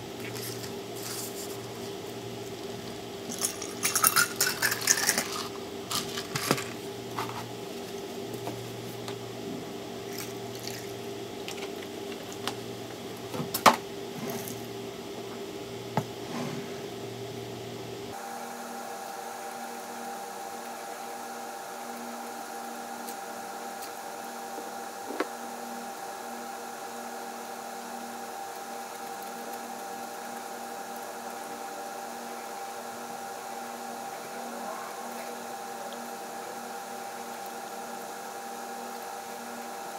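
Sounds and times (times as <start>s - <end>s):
electrical hum: 0.0s - 39.9s
ice clinking in glass: 3.3s - 5.4s.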